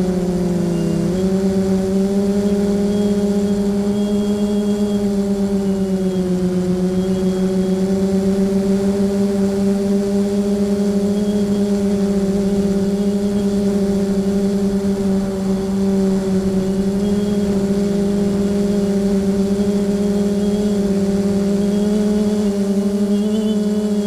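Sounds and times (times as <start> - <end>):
drone propellers humming: 0.0 - 24.0.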